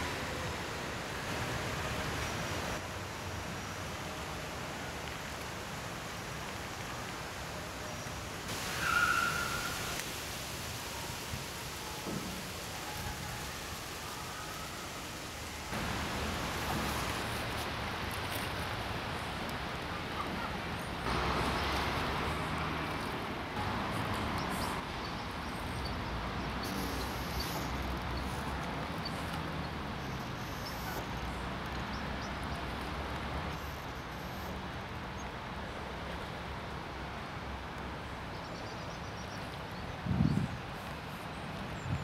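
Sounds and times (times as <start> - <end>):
distant traffic hum: 0.0 - 42.0.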